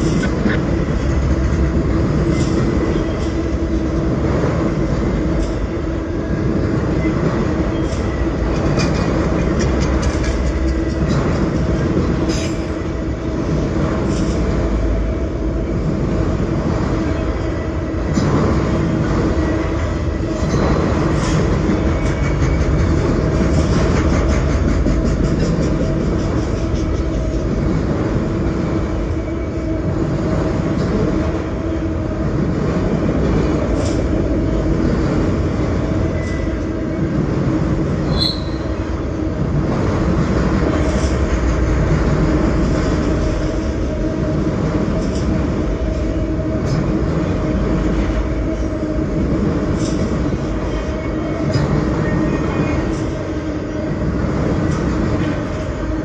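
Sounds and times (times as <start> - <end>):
train wheels rumbling on rail: 0.0 - 56.0
wheels clicking over rail joints: 7.5 - 12.8.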